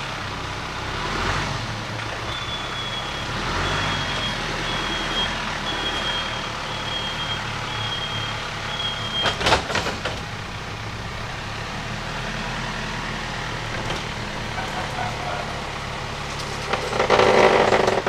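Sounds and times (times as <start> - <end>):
engine running: 0.0 - 18.0
backup alarm beeping: 2.3 - 9.4.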